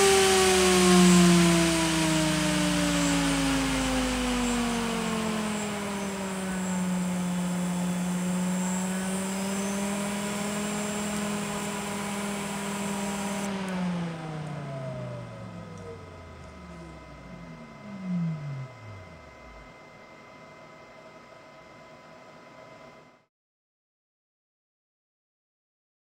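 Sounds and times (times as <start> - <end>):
fan air rush: 0.0 - 20.0
fan blade whine: 0.0 - 23.3.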